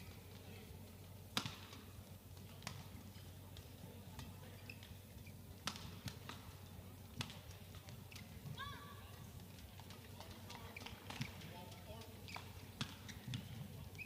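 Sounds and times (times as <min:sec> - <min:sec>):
shoe squeaks on court floor: 0:04.4 - 0:05.5, 0:10.5 - 0:11.5, 0:12.1 - 0:14.0.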